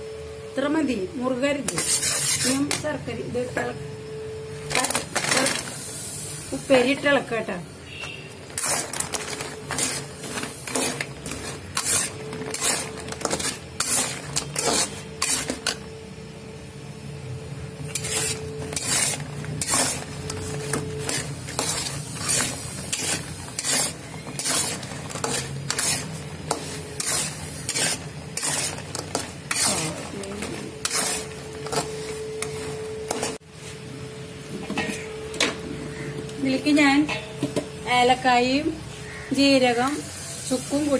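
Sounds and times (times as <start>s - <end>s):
metal spatula scraping a pan: 1.6s - 2.8s, 7.9s - 15.8s, 17.8s - 33.4s.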